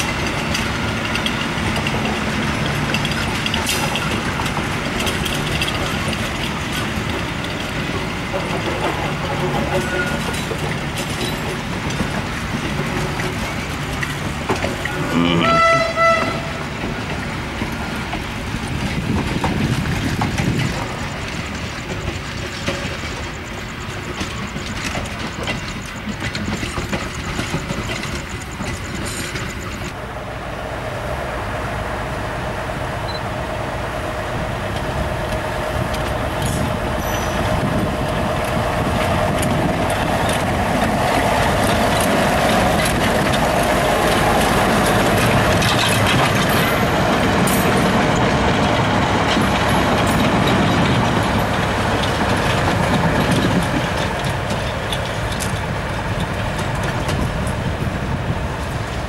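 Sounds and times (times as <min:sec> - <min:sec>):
locomotive engine whine: 0:00.0 - 0:59.0
train wheels rumbling on rails: 0:00.0 - 0:59.0.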